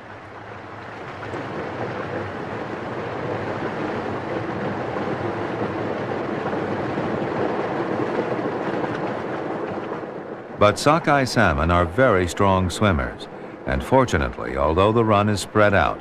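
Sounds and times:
river rushing through rapids: 10.6 - 16.0.

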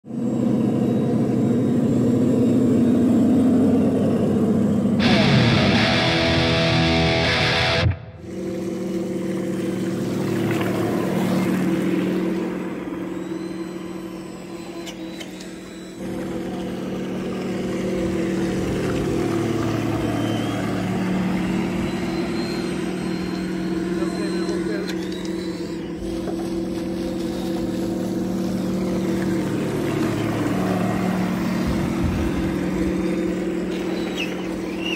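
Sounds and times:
loud rock music sting: 5.0 - 8.2
model boat electric motor hum: 8.2 - 34.9
water wash: 9.4 - 12.9, 16.0 - 23.0, 25.9 - 34.9.

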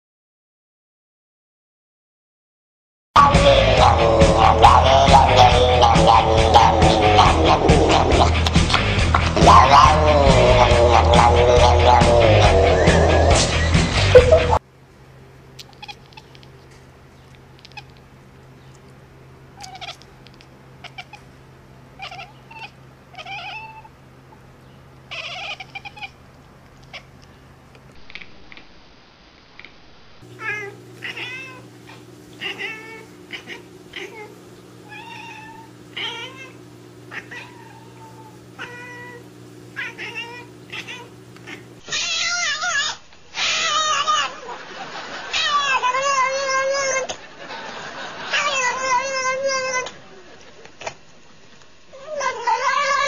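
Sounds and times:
steady low hum: 3.2 - 41.9
cat meowing: 15.6 - 16.4, 19.6 - 20.1, 20.8 - 21.3, 22.0 - 23.9, 25.1 - 26.2, 30.4 - 39.2, 39.8 - 44.4, 45.4 - 47.0, 48.4 - 49.9, 52.0 - 53.0.

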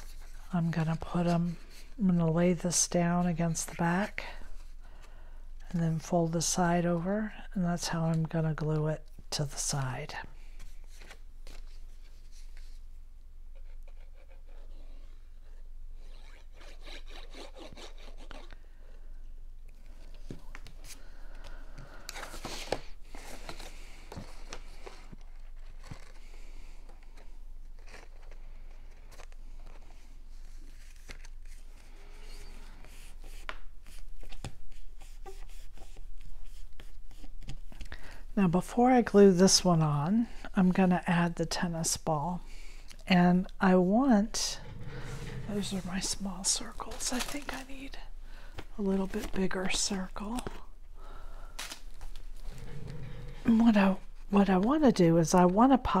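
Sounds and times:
paper rustling and scraping: 22.2 - 37.6, 45.6 - 48.0.

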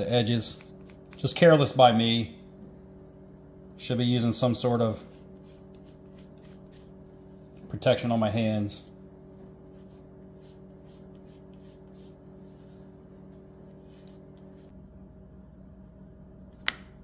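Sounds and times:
low room hum: 0.0 - 17.0
cloth rubbing strokes: 4.5 - 14.8.

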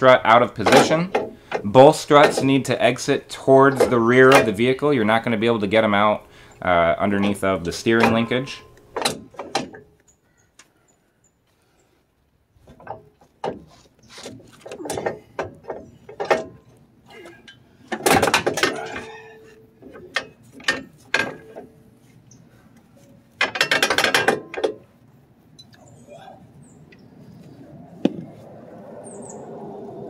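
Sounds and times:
metal clanks and knocks: 0.3 - 4.8, 7.2 - 10.0, 12.6 - 21.8, 23.0 - 24.9.

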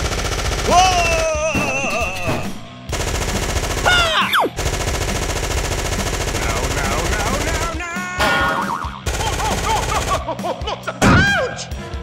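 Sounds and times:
machine gun firing: 0.0 - 8.2, 9.0 - 10.3
short falling wail: 0.7 - 2.6.

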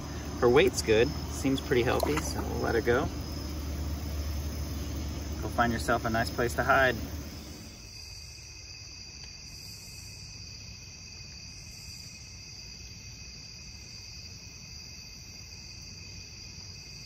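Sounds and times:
low rumble: 0.0 - 7.8
insects trilling: 0.0 - 17.0.

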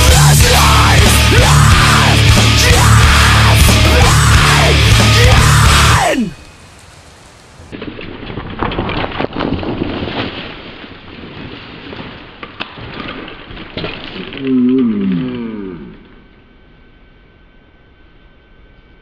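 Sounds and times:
loud heavy metal music: 0.0 - 6.5
bike tyres crackling over leaves: 4.1 - 16.1.

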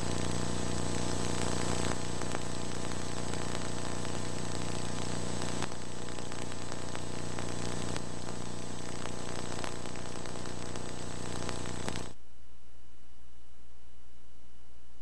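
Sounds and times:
crackles: 0.0 - 12.2
tape hiss: 0.0 - 15.0.

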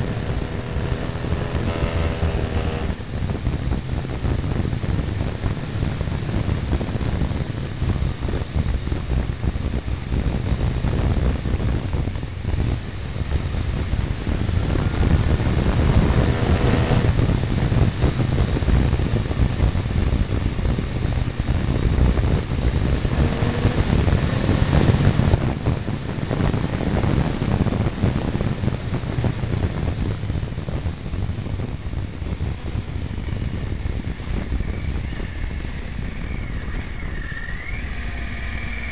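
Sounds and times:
motorcycle engine running: 0.0 - 36.1
wind rushing over camera: 0.0 - 38.9.

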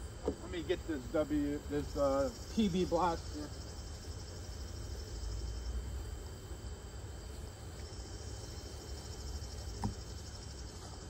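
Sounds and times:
insects chirring: 0.0 - 11.0
soft knock: 9.8 - 10.0.

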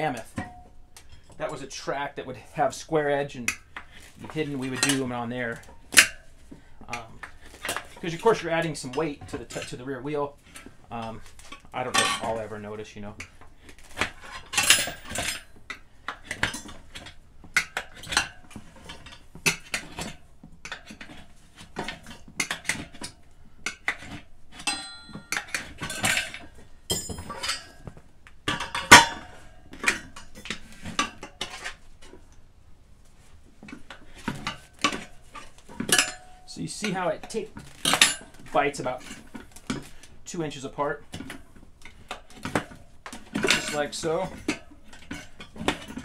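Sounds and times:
tire irons clinking on metal: 10.5 - 21.2, 24.5 - 31.8, 33.7 - 46.0.

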